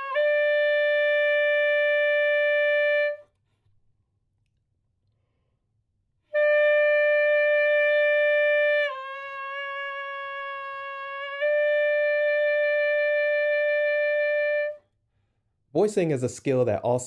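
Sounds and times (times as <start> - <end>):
saxophone sustained note: 0.0 - 3.2, 6.3 - 14.8.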